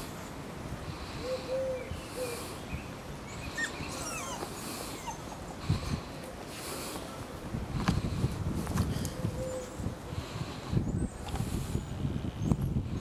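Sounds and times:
dove cooing: 1.1 - 2.5, 9.0 - 9.9
small birds chirping: 1.1 - 6.1.

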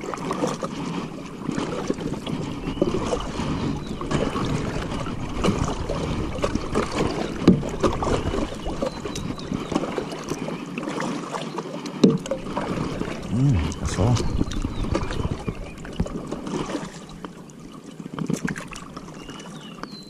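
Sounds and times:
wind rumble on microphone: 13.7 - 16.2.

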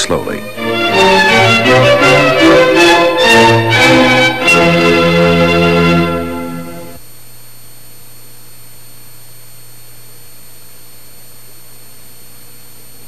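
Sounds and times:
string music: 0.0 - 7.0
tape hiss: 0.0 - 13.0.

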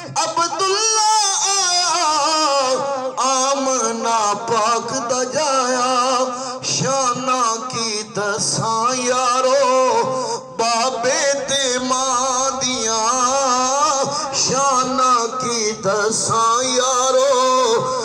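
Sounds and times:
man singing through loudspeaker: 0.0 - 18.0.

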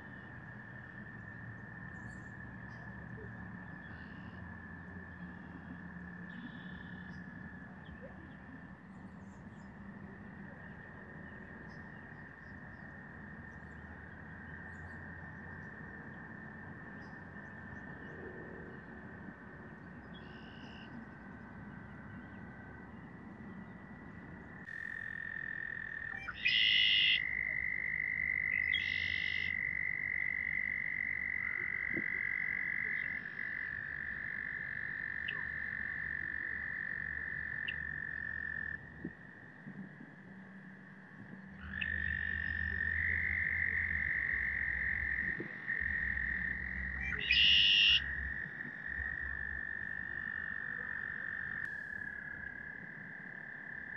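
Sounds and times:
frogs trilling: 0.0 - 53.9
short high-pitched frog calls: 24.6 - 53.9.

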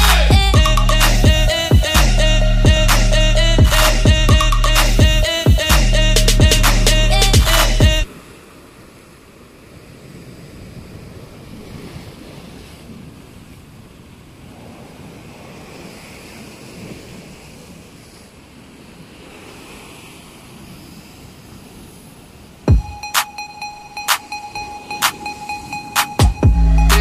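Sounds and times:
waves breaking on rocky shore: 8.1 - 22.7.

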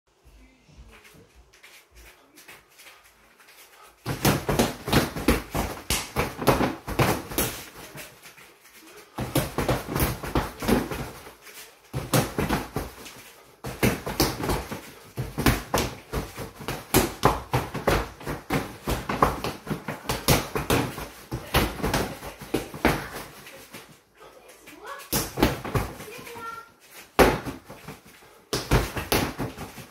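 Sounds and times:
punches hitting punching bag: 4.1 - 7.8, 11.9 - 13.0, 13.6 - 23.2, 27.2 - 27.8, 28.5 - 29.9.

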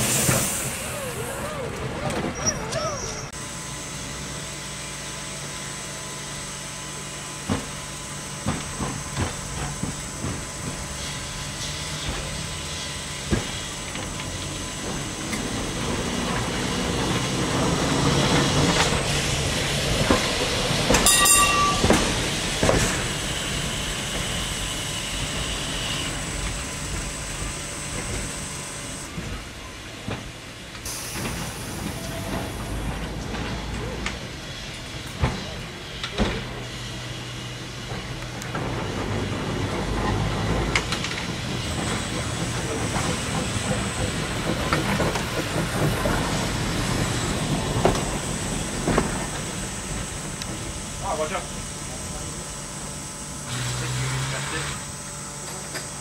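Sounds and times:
tram rolling rumble: 0.0 - 56.0
tram wheels knocking over rail joints: 13.2 - 28.4, 37.9 - 52.4
metallic ring of steel on steel: 21.0 - 21.9.

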